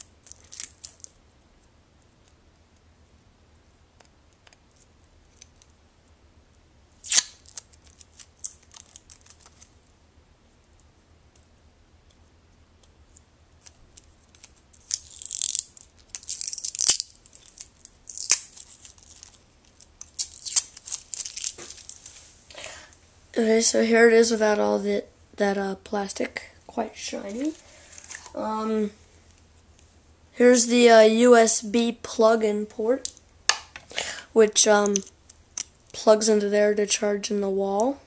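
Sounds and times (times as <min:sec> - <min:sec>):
plastic film crinkling: 0:00.0 - 0:01.2, 0:07.0 - 0:09.8, 0:13.6 - 0:22.2.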